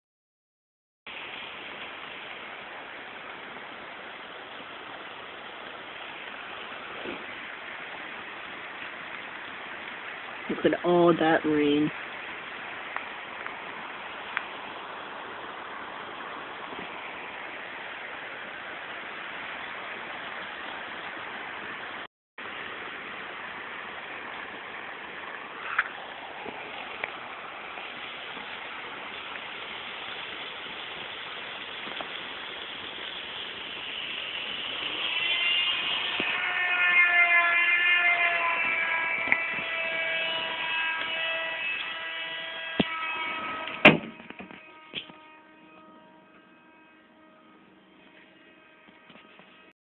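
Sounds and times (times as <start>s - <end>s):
heavy rain hiss: 1.1s - 44.3s
steady pitched tone: 34.0s - 49.7s.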